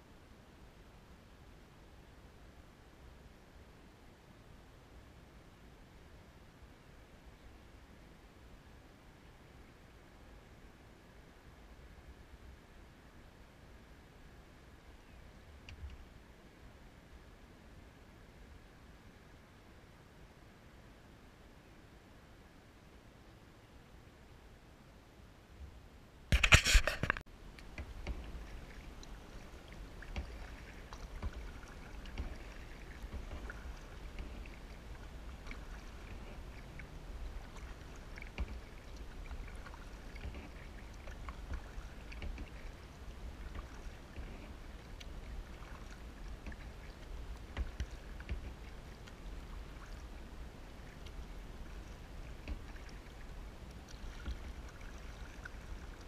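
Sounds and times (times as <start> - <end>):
paddle strokes: 26.3 - 56.0
small splashes: 26.4 - 56.0
water lapping and dripping: 26.4 - 56.0
steady low rumble: 27.3 - 54.8.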